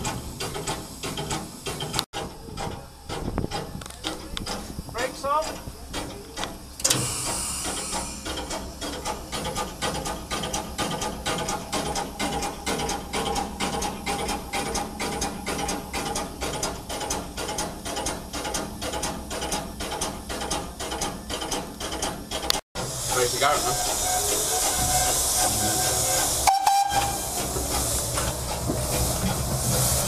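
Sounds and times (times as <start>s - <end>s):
steam locomotive clanks and chuffs: 0.0s - 30.0s
steam hiss: 6.7s - 17.1s, 22.8s - 30.0s.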